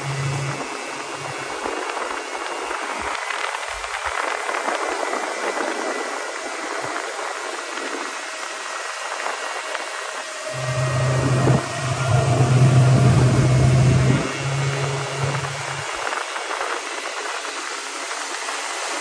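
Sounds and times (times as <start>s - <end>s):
outboard motor drone: 0.0s - 19.0s
water rushing past boat: 10.2s - 18.1s
wind rushing: 10.5s - 16.4s.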